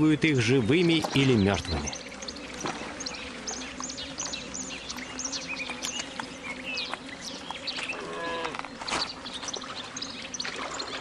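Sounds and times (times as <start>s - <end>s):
small birds chirping: 0.0s - 11.0s
water lapping: 9.5s - 11.0s.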